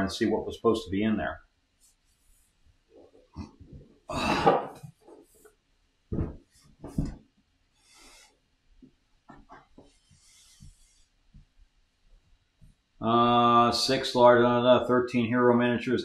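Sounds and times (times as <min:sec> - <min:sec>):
person coughing: 0:04.1 - 0:04.8.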